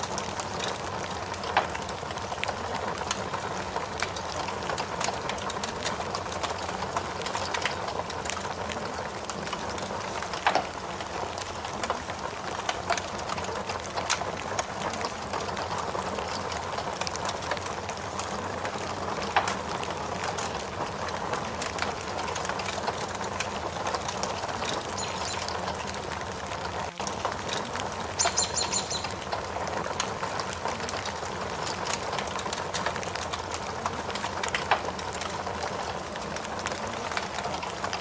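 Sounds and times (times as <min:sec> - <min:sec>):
fire crackling and popping: 0:00.0 - 0:38.0
rain hissing: 0:00.0 - 0:38.0.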